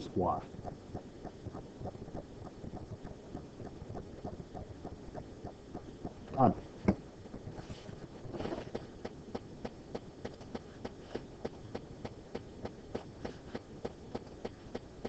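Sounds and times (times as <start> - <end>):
faint steady ticking: 0.0 - 15.0
soft rustle: 6.4 - 9.1.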